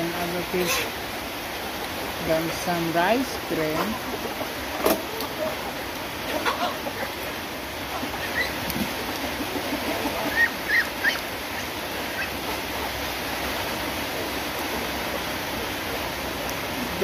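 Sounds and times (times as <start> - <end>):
rain hiss: 0.0 - 17.0
chickens and ducks calling: 0.3 - 1.0, 3.6 - 13.2.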